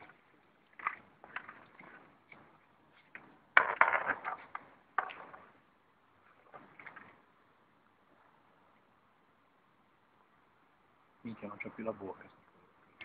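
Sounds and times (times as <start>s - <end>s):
landing net knocking and scraping: 0.7s - 5.6s, 6.4s - 7.2s.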